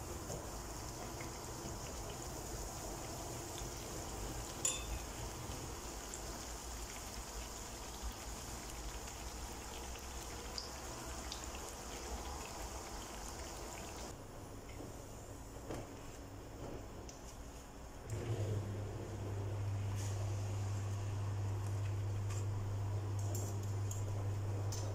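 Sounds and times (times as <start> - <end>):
food sizzling in hot oil: 0.0 - 14.1.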